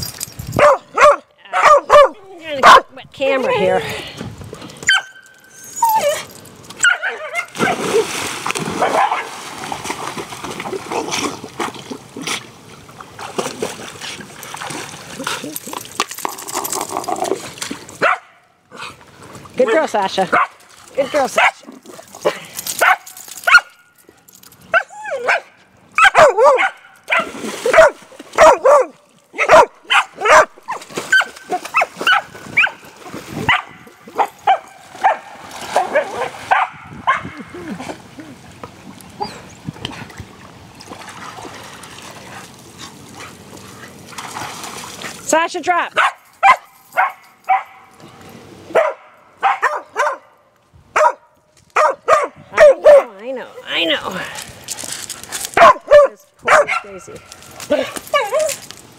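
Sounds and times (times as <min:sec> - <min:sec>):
dog barking and yipping: 0:00.6 - 0:02.9, 0:04.9 - 0:07.9, 0:08.8 - 0:09.3, 0:18.0 - 0:18.4, 0:22.8 - 0:23.8, 0:24.7 - 0:32.8, 0:33.5 - 0:37.4, 0:46.0 - 0:47.9, 0:48.7 - 0:50.3, 0:51.0 - 0:53.2, 0:55.6 - 0:57.0
dog whining: 0:04.9 - 0:06.3.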